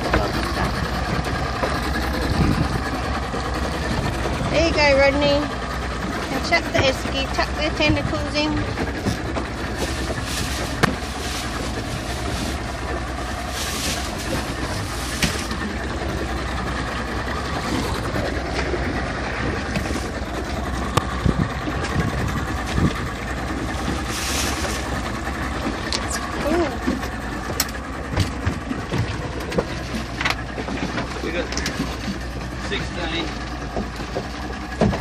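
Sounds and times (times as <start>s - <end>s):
boat motor humming: 0.0s - 35.0s
plastic bag rustling: 9.6s - 15.5s, 23.9s - 25.0s.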